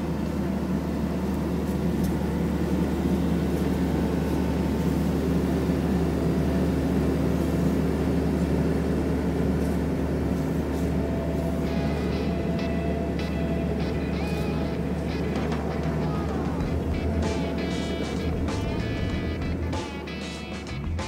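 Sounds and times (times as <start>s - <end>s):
diesel engine running under load: 0.0s - 21.0s.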